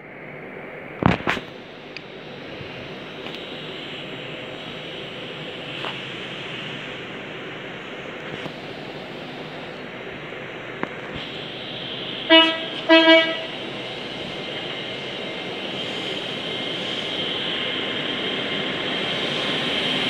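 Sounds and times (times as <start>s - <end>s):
train humming: 0.0s - 20.0s
train horn toots: 12.3s - 13.6s.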